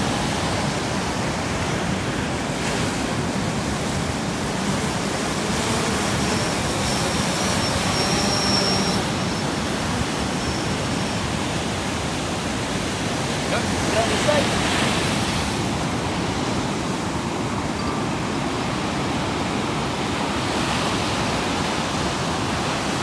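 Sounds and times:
drone propellers whining: 3.5 - 13.9.

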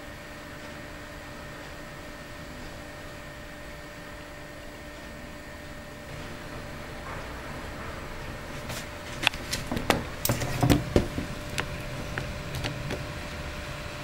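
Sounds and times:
sharp clicks and knocks: 8.6 - 13.1.

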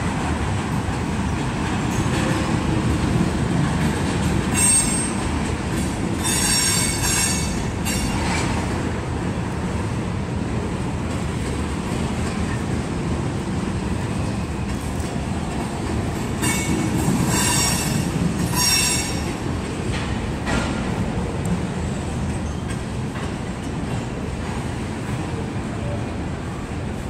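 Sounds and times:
freight train rumbling past: 0.0 - 27.0
metallic wheel squeal: 6.2 - 8.1, 17.3 - 19.2.

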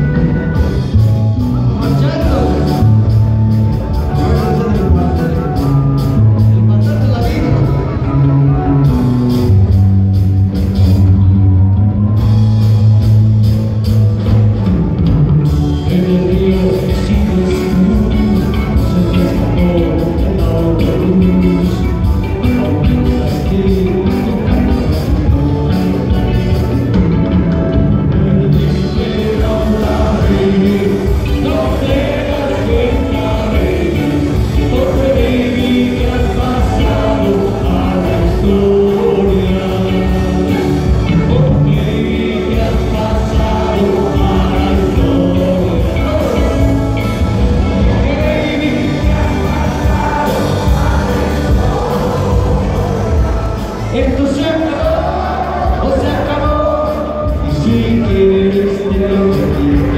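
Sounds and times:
electric guitar: 0.0 - 59.9
live band music through pa: 0.0 - 59.9
person singing: 15.4 - 59.9.

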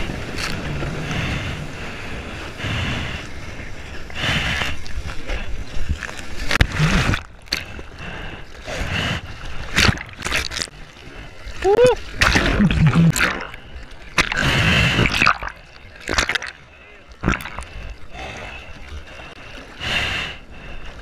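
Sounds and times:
seawater sloshing and lapping: 0.0 - 20.9
hands paddling splashes: 14.2 - 16.6.

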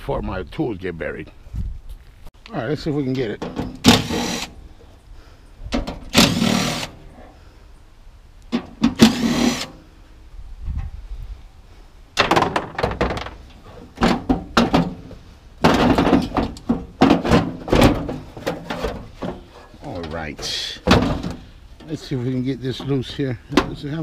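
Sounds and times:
cordless drill whirring: 6.2 - 6.9
sheet metal clanking: 12.2 - 21.5.

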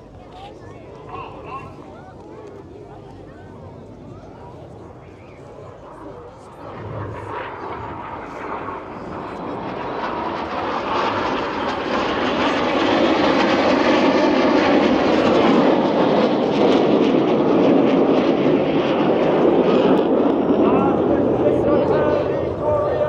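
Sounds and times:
jet roar: 3.5 - 23.0.

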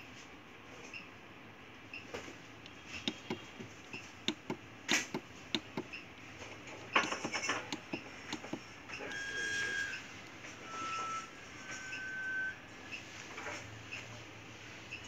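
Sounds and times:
keypad buttons clicking: 3.0 - 6.0, 6.9 - 9.3.

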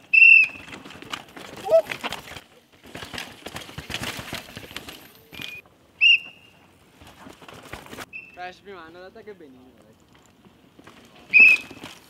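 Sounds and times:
mountain bike rattling over rocks: 0.0 - 5.7, 6.8 - 8.1, 9.6 - 12.0
whistle blasts: 0.1 - 0.7, 5.4 - 6.6, 8.1 - 8.4, 11.3 - 11.8.

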